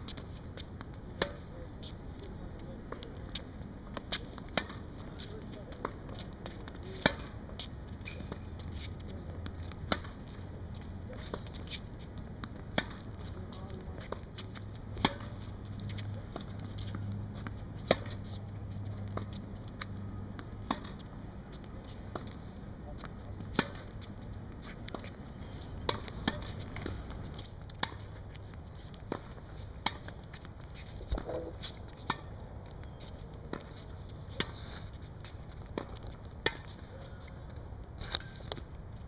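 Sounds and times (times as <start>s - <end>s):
racquet hitting tennis ball: 15.0s - 18.2s, 25.9s - 27.2s.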